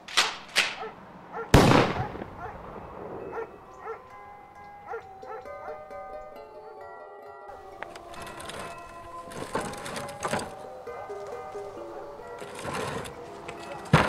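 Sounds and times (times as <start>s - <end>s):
shotgun blast: 1.5s - 3.3s
soft music with held notes: 2.8s - 14.0s.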